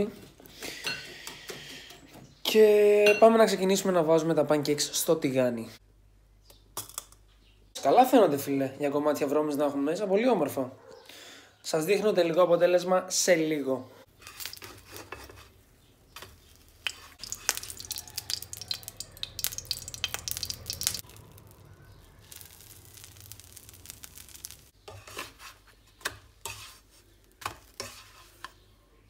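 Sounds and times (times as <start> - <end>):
batter sizzling in oil: 14.1 - 25.7, 26.4 - 28.6
spatula scraping and tapping pan: 14.2 - 18.8, 22.3 - 28.7.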